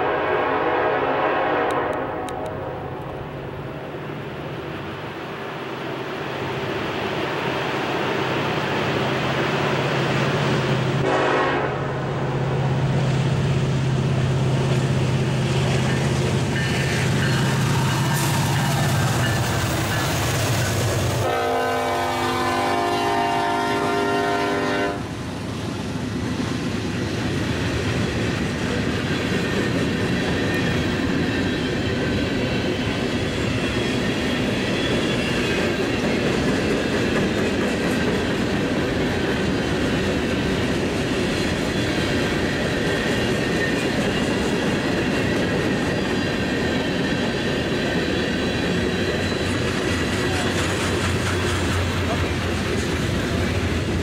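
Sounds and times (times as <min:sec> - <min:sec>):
train horn: 0:00.0 - 0:03.0, 0:11.0 - 0:12.2, 0:21.2 - 0:25.1
freight cars rolling on rails: 0:12.6 - 0:24.4, 0:25.1 - 0:54.0.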